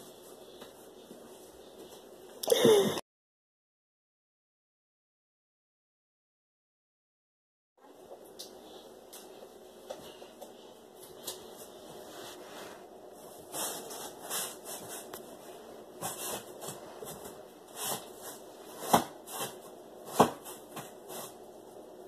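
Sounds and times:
rubbing and rustling: 0:11.1 - 0:21.6.

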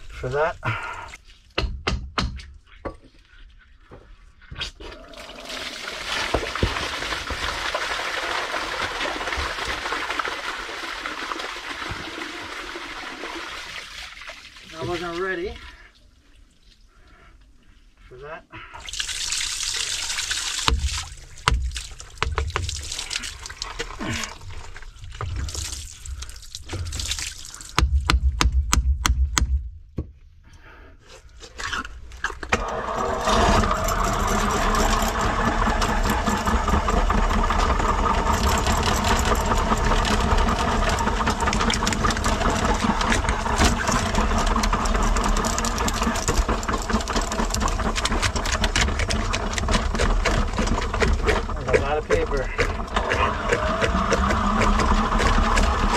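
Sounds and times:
knocks on pipe: 0:01.6 - 0:03.0, 0:27.8 - 0:30.1
wastewater spilling and splashing: 0:05.0 - 0:16.6, 0:18.8 - 0:27.8, 0:32.2 - 0:55.9
drain-cleaning machine running: 0:05.4 - 0:13.5, 0:32.6 - 0:55.9.

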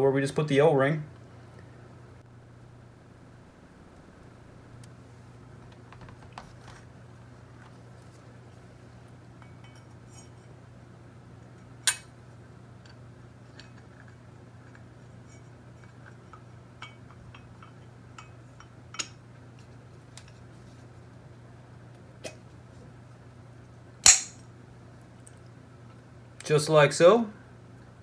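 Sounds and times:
faint low hum: 0:00.0 - 0:28.0
sharp click: 0:11.8 - 0:12.1, 0:24.0 - 0:24.4.

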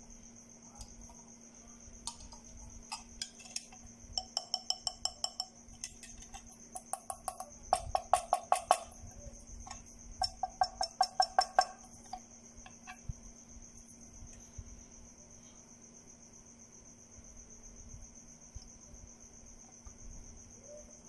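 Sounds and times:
ringing taps on lamps: 0:02.1 - 0:09.0, 0:09.7 - 0:13.0.

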